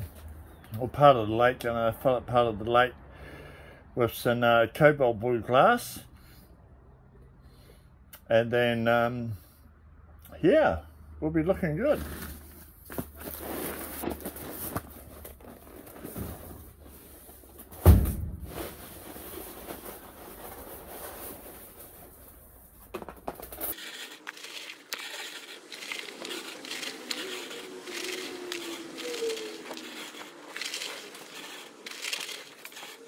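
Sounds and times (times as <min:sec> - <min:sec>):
loud thump: 0:17.8 - 0:18.6.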